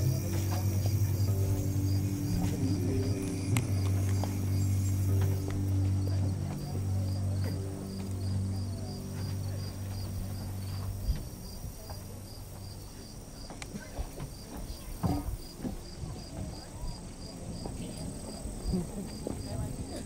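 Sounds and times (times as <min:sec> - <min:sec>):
low steady hum: 0:00.0 - 0:13.4
insects chirping: 0:00.0 - 0:20.0.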